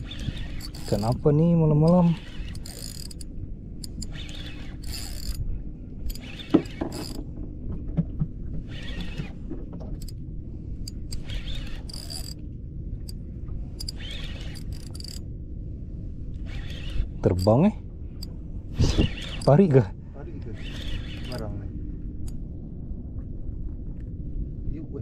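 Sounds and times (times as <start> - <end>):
fishing reel handle cranking: 0.0 - 5.4, 6.0 - 7.2, 8.7 - 9.3, 10.9 - 12.4, 13.8 - 15.2, 16.4 - 17.7, 18.9 - 19.6, 20.5 - 21.6
reel drag ratcheting: 0.0 - 7.3, 8.6 - 10.2, 10.8 - 12.4, 13.0 - 15.2, 16.4 - 19.7, 20.4 - 21.6
steady low hum: 0.0 - 25.0.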